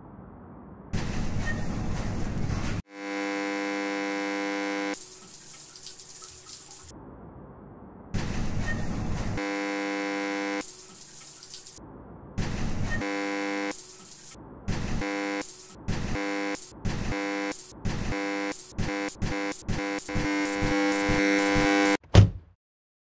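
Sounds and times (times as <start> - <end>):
harsh buzzer tone: 2.8 - 5.3, 9.4 - 10.9, 13.0 - 22.0.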